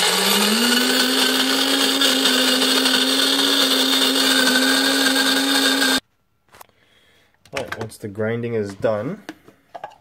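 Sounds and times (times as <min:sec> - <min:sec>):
coffee grinder motor whine: 0:00.0 - 0:06.0.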